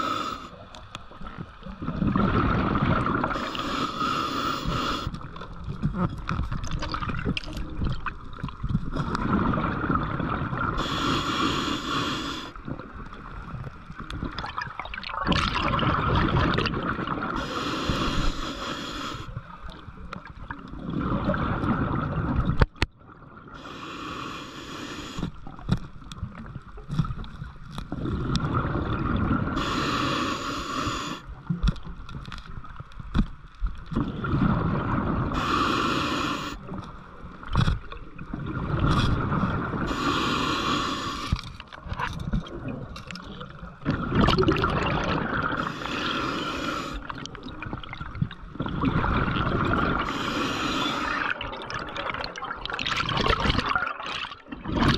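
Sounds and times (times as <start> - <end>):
regulator inhale hiss: 0.0 - 0.6, 3.3 - 5.4, 10.8 - 12.7, 17.4 - 19.4, 23.6 - 25.5, 29.6 - 31.6, 35.3 - 36.8, 39.8 - 41.6, 45.5 - 47.3, 50.0 - 51.4
regulator exhale bubbling: 1.8 - 13.0, 14.3 - 19.6, 27.9 - 31.5, 34.0 - 36.8, 37.8 - 41.5, 42.4 - 54.9.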